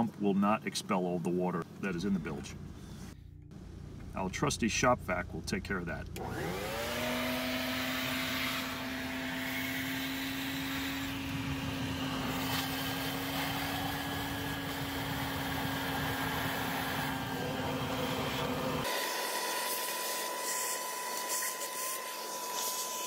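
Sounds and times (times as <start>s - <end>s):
shop vac motor whining: 6.0s - 23.0s
vacuum sucking water: 6.2s - 23.0s.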